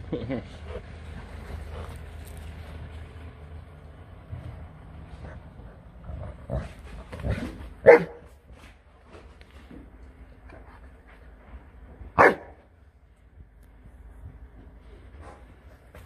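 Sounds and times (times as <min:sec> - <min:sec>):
dog barking: 0:07.8 - 0:08.2, 0:12.2 - 0:12.6.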